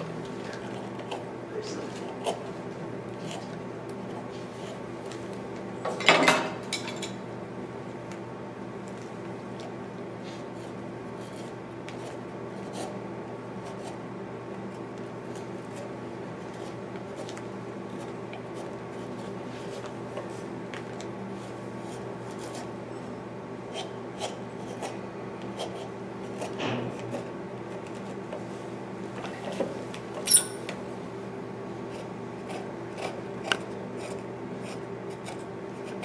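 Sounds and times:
blade shaving wood: 9.6 - 13.0, 21.4 - 22.8, 31.9 - 36.0.

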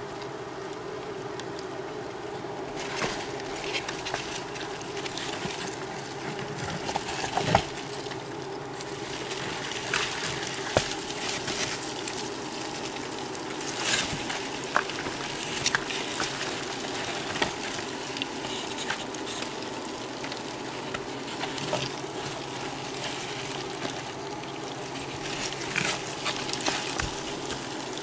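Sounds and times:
cardboard rustling and scraping: 2.7 - 8.1, 8.9 - 12.5, 13.6 - 19.6, 20.6 - 24.2, 24.8 - 28.0
crinkles: 2.7 - 28.0.

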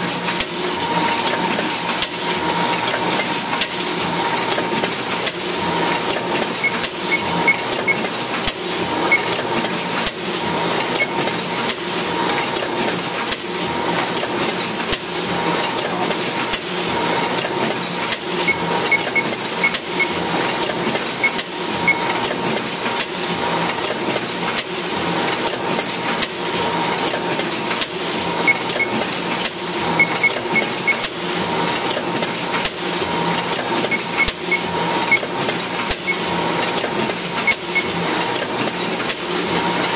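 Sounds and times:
paper collator whirring: 0.0 - 39.9
sharp mechanical clicks: 0.3 - 10.2, 16.5 - 23.1, 25.3 - 39.9.

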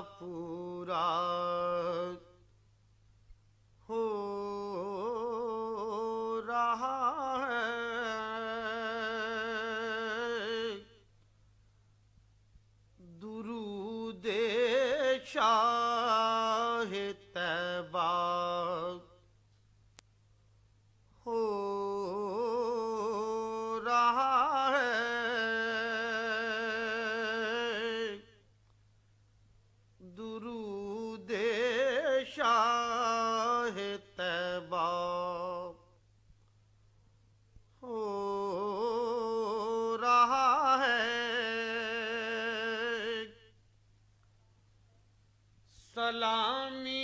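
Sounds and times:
man singing unaccompanied: 0.0 - 2.5, 3.8 - 11.1, 13.0 - 19.3, 21.2 - 28.4, 30.0 - 36.0, 37.8 - 43.6, 45.7 - 47.0
faint low hum: 0.0 - 47.0.

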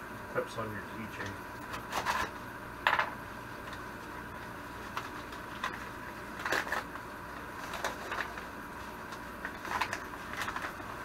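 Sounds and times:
faint steady hum: 0.0 - 11.0
packaging rustling and crinkling: 4.8 - 11.0.

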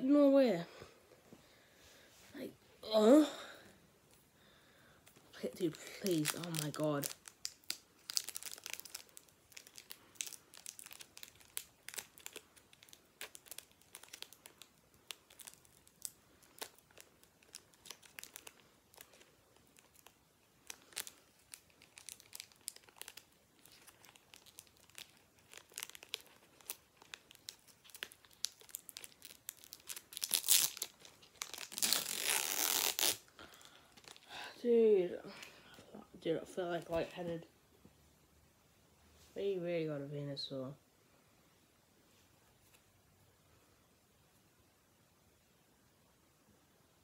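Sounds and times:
foil wrapper crinkling: 5.4 - 34.3.

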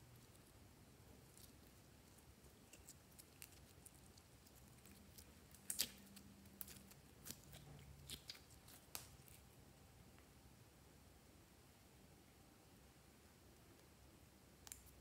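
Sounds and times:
slime squelching: 1.1 - 9.6.

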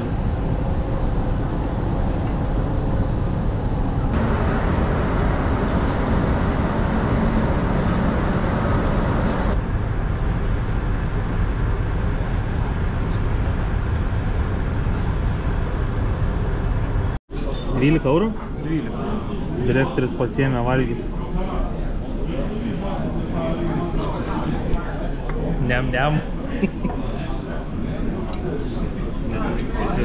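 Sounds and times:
moving vehicle rumble and hiss: 0.0 - 17.2.

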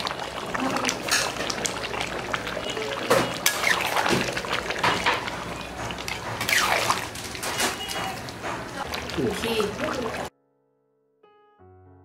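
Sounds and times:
wet sloshing liquid: 0.0 - 10.3
metal utensil scraping pot: 1.0 - 9.6.

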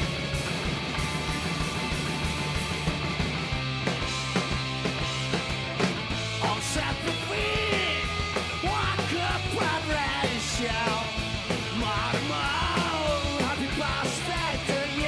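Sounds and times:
drums: 0.0 - 15.0
electric guitars: 0.0 - 15.0
person singing and shouting: 6.4 - 15.0.

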